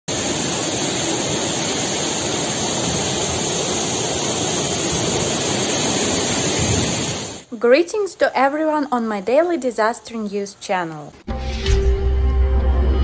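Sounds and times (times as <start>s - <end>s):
floodwater rushing: 0.1s - 7.5s.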